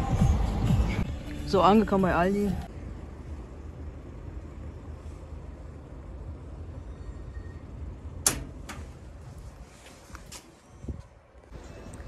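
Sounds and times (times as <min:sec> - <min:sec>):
steady low rumble: 0:00.0 - 0:06.9
locker door clacking open: 0:08.2 - 0:09.0.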